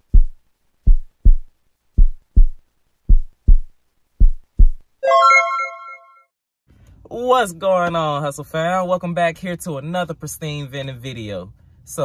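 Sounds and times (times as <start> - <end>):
heartbeat double thumps: 0.0 - 4.9.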